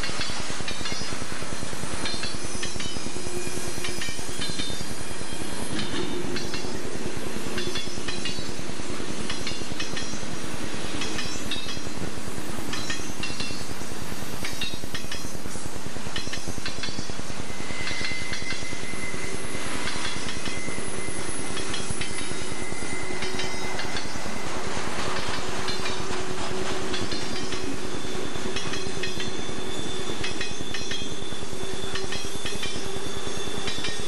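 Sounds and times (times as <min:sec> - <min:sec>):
train wheels rumbling on rails: 0:00.0 - 0:34.0
high-pitched wheel squeals: 0:16.2 - 0:34.0.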